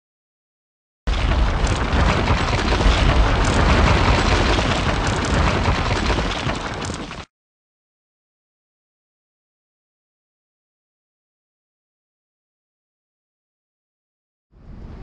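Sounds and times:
rumbling crash with heavy bass: 1.1s - 7.3s.

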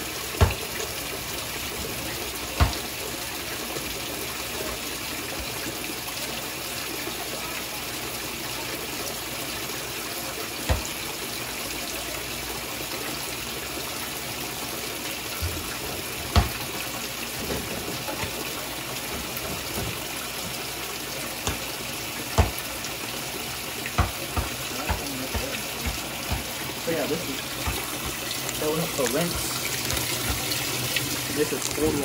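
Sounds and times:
water pouring into washer tub: 0.0s - 32.0s
sharp knocks: 0.4s - 0.6s, 16.3s - 16.6s, 21.4s - 21.6s, 22.4s - 22.6s, 23.9s - 26.6s.

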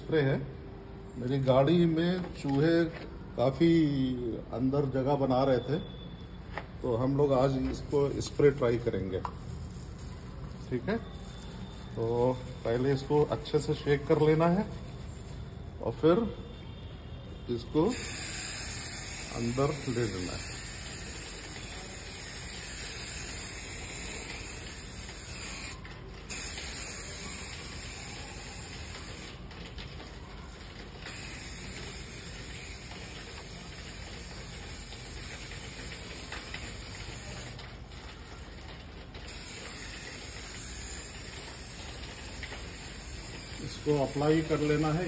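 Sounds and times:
aerosol spray hissing: 17.9s - 29.3s, 31.1s - 37.5s, 39.3s - 44.8s.

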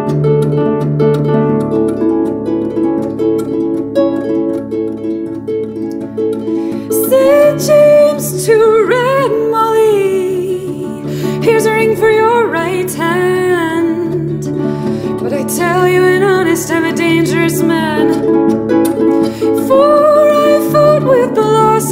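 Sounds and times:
harp plucked notes: 0.0s - 21.9s
woman singing with vibrato: 6.8s - 18.4s, 19.3s - 21.9s.

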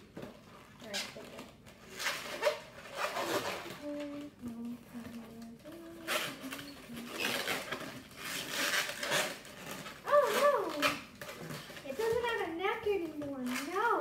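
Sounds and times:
balloon rubbing and squeaking: 0.6s - 12.4s
hummed notes: 3.7s - 7.6s.

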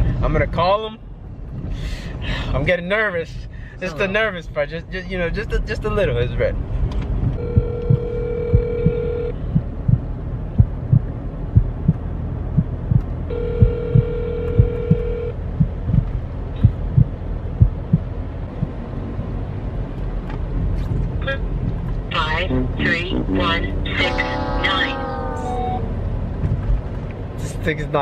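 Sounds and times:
short low thumps: 7.1s - 18.9s
steady low hum: 7.2s - 27.5s
phone ringback tone: 7.4s - 9.3s, 13.3s - 15.3s, 24.0s - 25.8s.

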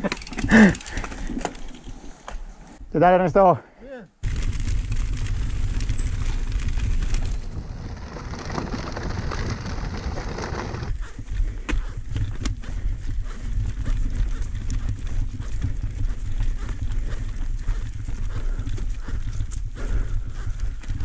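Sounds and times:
tyre and rattle noise: 0.0s - 2.6s, 4.2s - 11.0s
bike knocking over stones: 4.2s - 10.9s
wind rumble on microphone: 4.2s - 21.0s.

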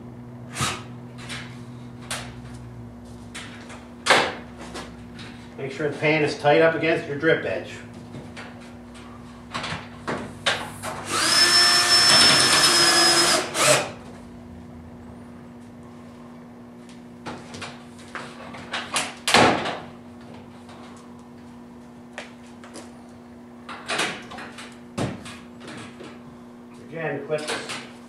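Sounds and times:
cordless drill whining: 11.1s - 14.0s.

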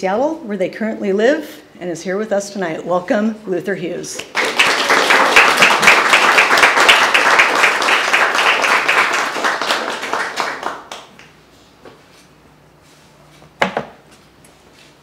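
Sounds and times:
audience applauding: 4.2s - 11.2s.

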